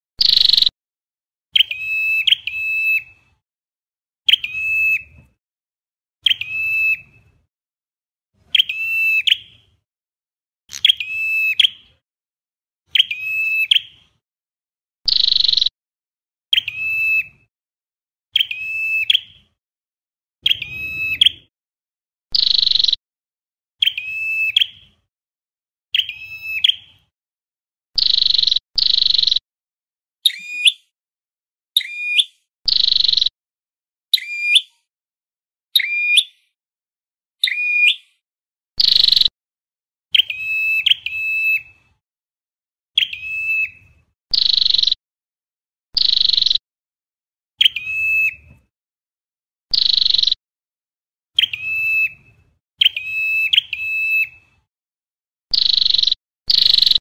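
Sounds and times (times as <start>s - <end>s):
bird calling harsh and clear notes: 0.2s - 0.8s, 1.6s - 3.3s, 4.3s - 5.2s, 6.2s - 7.4s, 8.4s - 9.8s, 10.7s - 12.0s, 12.9s - 14.0s, 15.1s - 15.8s, 16.5s - 17.4s, 18.4s - 19.6s, 20.4s - 21.5s, 22.3s - 23.0s, 23.8s - 25.0s, 25.9s - 27.1s, 28.0s - 29.4s, 30.2s - 30.9s, 31.8s - 33.3s, 34.1s - 34.9s, 35.7s - 36.6s, 37.4s - 38.2s, 38.8s - 39.3s, 40.1s - 41.8s, 43.0s - 45.0s, 46.0s - 46.6s, 47.6s - 48.5s, 49.7s - 50.4s, 51.4s - 52.2s, 52.8s - 54.5s, 55.5s - 57.0s.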